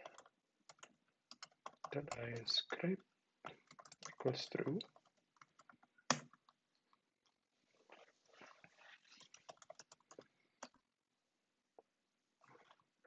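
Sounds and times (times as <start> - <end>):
computer keyboard typing: 0.0 - 2.5, 3.5 - 6.6, 9.2 - 10.8.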